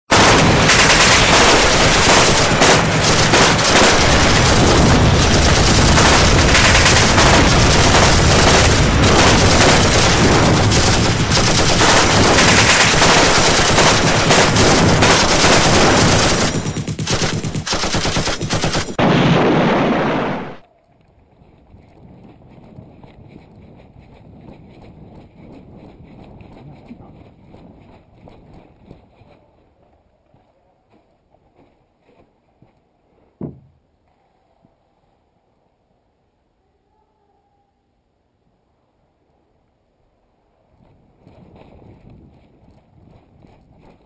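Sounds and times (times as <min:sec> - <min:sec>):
machine-gun fire: 0:00.1 - 0:20.6
single gunshots: 0:00.1 - 0:20.6.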